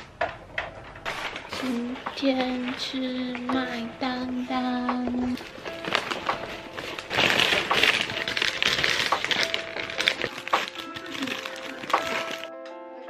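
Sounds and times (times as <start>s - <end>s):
soft background music: 0.6s - 13.0s
paper wrapper crinkling and tearing: 1.0s - 2.8s, 5.3s - 12.5s
bags rustling: 1.0s - 3.4s, 5.2s - 12.5s.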